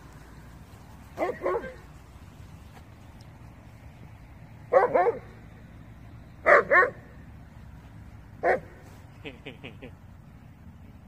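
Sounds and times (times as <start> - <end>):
dog barking: 1.2 - 1.8, 4.7 - 5.4, 6.4 - 7.0, 8.4 - 8.8.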